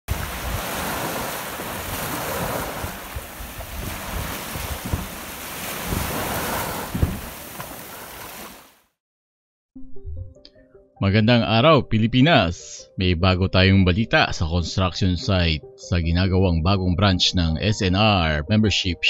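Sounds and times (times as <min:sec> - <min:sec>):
small waves breaking on shore: 0:00.0 - 0:08.9
wind buffeting microphone: 0:00.1 - 0:08.4.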